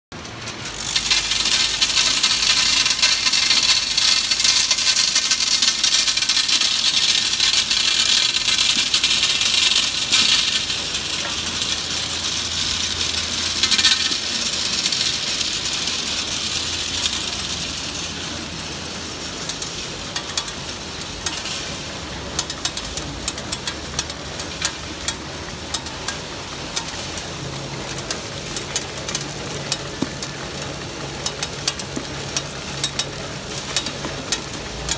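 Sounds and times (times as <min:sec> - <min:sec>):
sharp ticks and clicks: 0:00.2 - 0:18.1
candies rattling in machine: 0:00.2 - 0:34.9.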